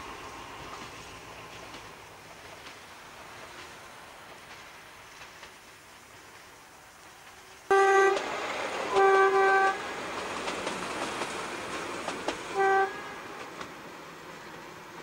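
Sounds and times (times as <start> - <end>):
train running on track: 0.0 - 15.0
train horn blasts: 7.7 - 8.3, 8.9 - 9.9, 12.5 - 13.5.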